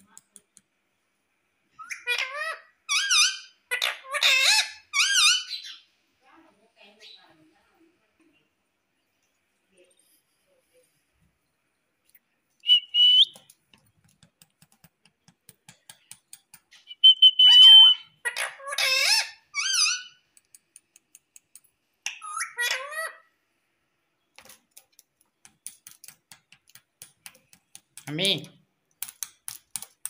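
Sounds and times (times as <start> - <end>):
parakeet chattering calls: 1.8 - 5.8, 17.4 - 20.2
parakeet whistles: 12.6 - 13.4, 16.8 - 18.2
beak tapping on plastic: 13.2 - 16.8, 24.4 - 28.2, 29.0 - 30.0.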